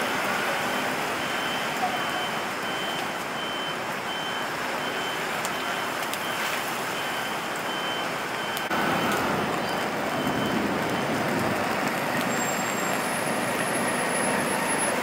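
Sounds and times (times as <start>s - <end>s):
rain hiss: 0.0s - 15.0s
traffic on wet street: 0.0s - 15.0s
pedestrian crossing beeps: 0.4s - 11.2s.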